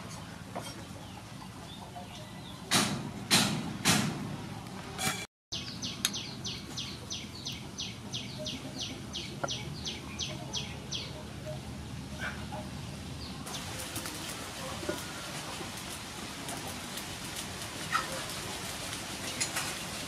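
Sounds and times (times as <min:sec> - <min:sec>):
bird chirping: 0:05.5 - 0:13.7.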